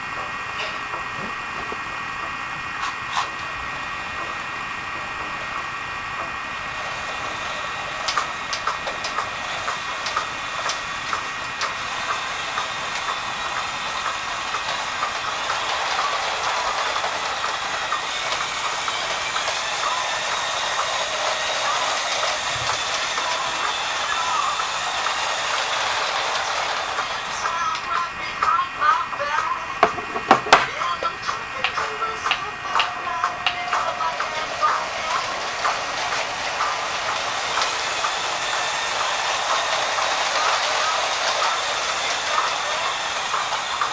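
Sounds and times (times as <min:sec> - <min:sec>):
toy train motor whine: 0:00.0 - 0:43.9
wheels hissing on plastic rails: 0:00.0 - 0:43.9
wheels clicking over track joints: 0:29.3 - 0:43.9.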